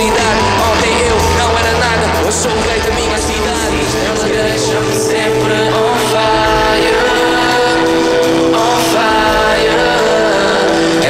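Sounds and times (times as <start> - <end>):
live band playing amplified music: 0.0 - 11.0.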